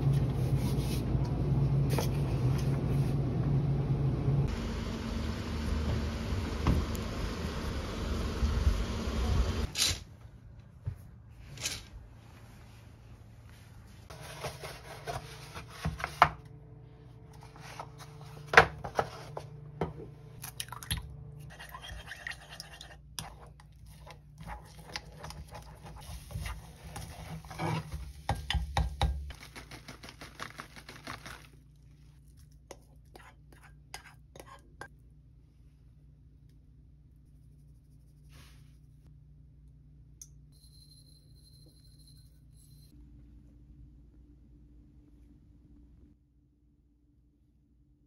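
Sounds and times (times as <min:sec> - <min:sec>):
scraping egg into bowl: 0:32.7 - 0:34.9.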